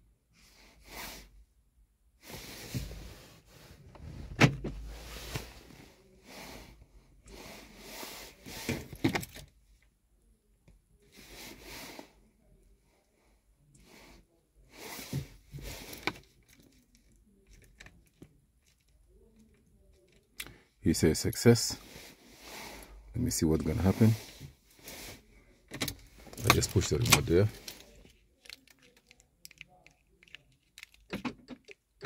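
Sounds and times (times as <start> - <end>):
rustling and handling noises: 21.7 - 32.0.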